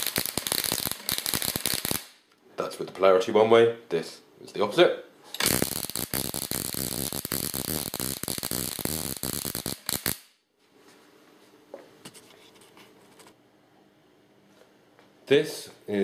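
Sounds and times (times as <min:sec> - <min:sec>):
crackling buzz of sparks: 0:00.0 - 0:02.2, 0:05.4 - 0:10.4.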